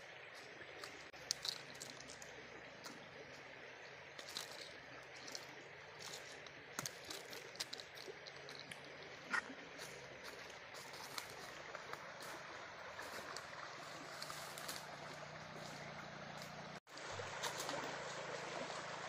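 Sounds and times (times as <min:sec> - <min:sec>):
stream water flowing: 0:00.0 - 0:19.0
bamboo trap clicking on dry leaves: 0:00.8 - 0:03.0, 0:06.0 - 0:09.0.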